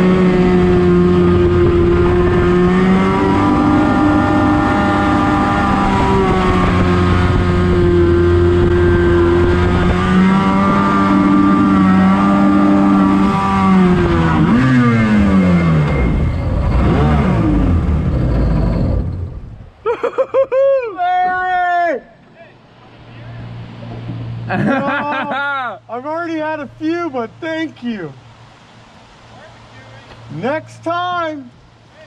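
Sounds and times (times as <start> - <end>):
outboard motor running: 0.0 - 19.6
person's voice: 24.7 - 28.2.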